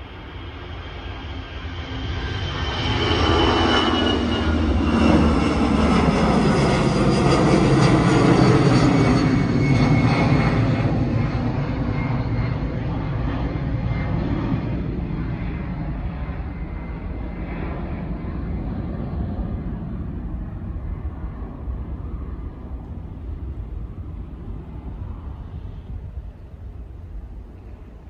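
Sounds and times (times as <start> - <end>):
high jet engine whine: 0.0 - 28.0
jet engine roar: 0.0 - 28.0.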